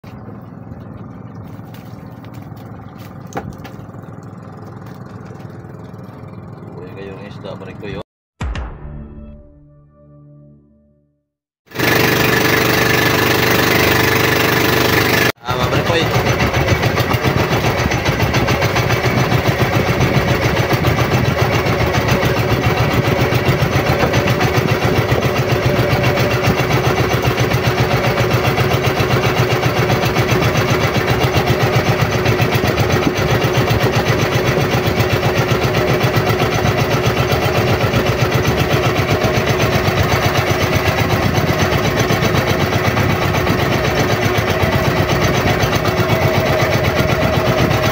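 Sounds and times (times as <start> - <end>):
boat engine chugging: 0.0 - 8.0, 11.7 - 47.9
intro music: 8.4 - 11.2.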